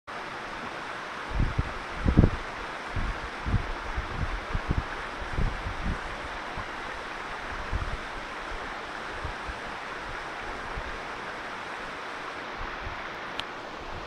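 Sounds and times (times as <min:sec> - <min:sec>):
stream running over rocks: 0:00.1 - 0:14.0
wind buffeting microphone: 0:01.3 - 0:11.0.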